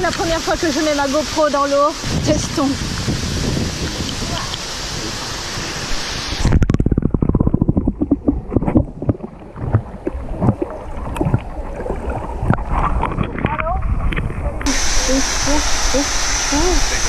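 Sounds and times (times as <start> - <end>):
open-air water noise: 0.0 - 17.0
underwater knocks and thumps: 6.4 - 14.4
underwater clicks: 6.4 - 14.7.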